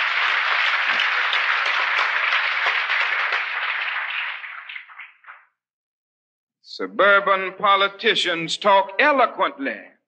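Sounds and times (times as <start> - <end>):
audience applause: 0.0 - 5.5.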